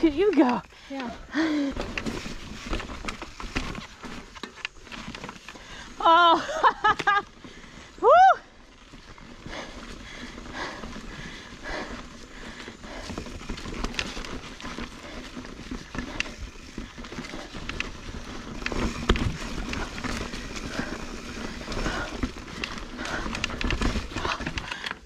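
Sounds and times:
bike tyres on dirt and stone: 0:00.0 - 0:25.0
bike knocking on rocks: 0:13.0 - 0:24.8.

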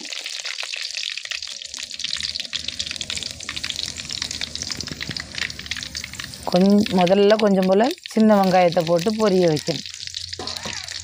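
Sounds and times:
seeds sizzling in hot oil: 0:00.0 - 0:11.0
small crackling pops: 0:03.4 - 0:11.0.

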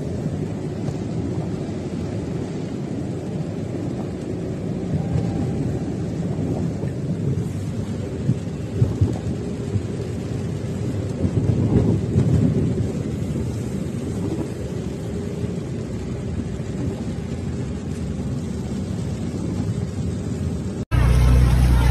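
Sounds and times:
floodwater washing against vehicle: 0:00.0 - 0:21.9.

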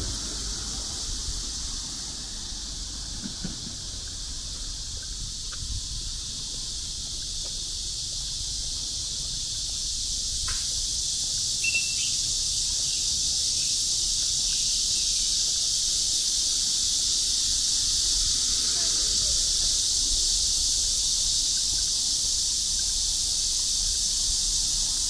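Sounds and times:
high-pitched insect chorus: 0:00.0 - 0:25.0
brief high chirp: 0:11.6 - 0:12.2.

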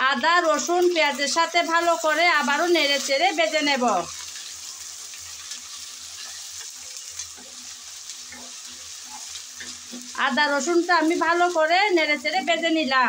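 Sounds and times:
onion sizzling in hot oil: 0:00.0 - 0:13.0
wooden spatula scraping pan: 0:05.3 - 0:10.2.

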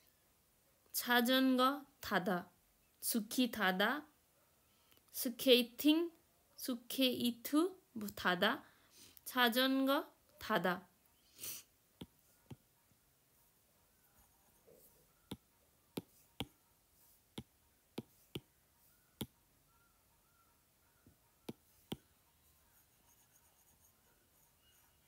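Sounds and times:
stylus tapping on glass screen: 0:16.0 - 0:16.5.

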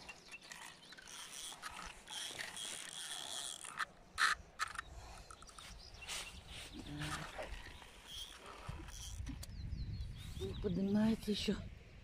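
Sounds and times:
fishing reel whirring: 0:00.5 - 0:04.8, 0:08.0 - 0:09.3
fishing reel clicks: 0:00.6 - 0:04.8.

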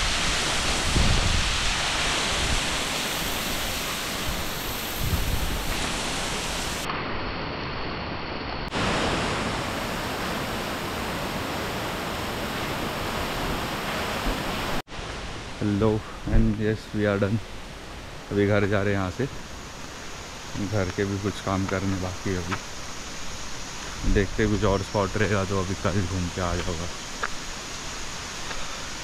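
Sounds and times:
wind buffeting microphone: 0:00.0 - 0:06.0
waterfall rushing: 0:00.0 - 0:06.9, 0:08.7 - 0:16.3.

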